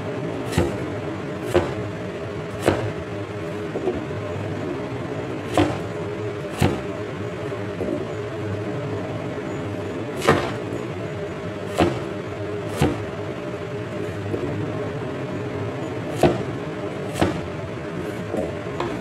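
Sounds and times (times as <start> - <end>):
steady background hum: 0.0 - 19.0
cleaver knocking cutting board: 1.5 - 1.8.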